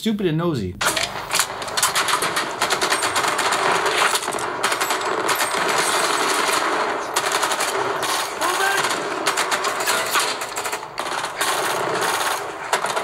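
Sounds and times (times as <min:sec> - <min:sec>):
automatic rifle fire: 0:00.8 - 0:13.0.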